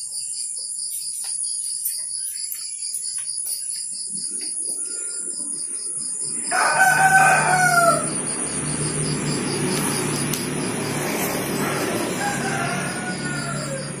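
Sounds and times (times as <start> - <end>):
rooster crowing: 6.4 - 8.3, 11.5 - 14.0.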